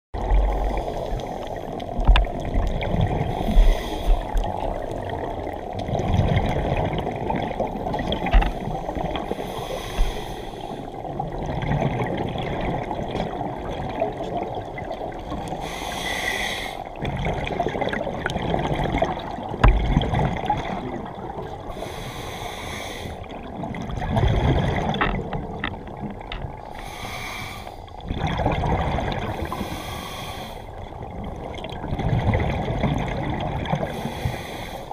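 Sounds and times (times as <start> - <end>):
underwater water noise: 0.1 - 34.9
exhaled bubbles rumbling: 0.2 - 15.8, 16.9 - 21.8, 23.2 - 26.9, 27.9 - 29.8, 30.7 - 34.2
hissing regulator inhales: 9.3 - 10.9, 15.6 - 16.9, 21.7 - 23.3, 26.7 - 28.0, 29.4 - 30.7, 33.9 - 34.9.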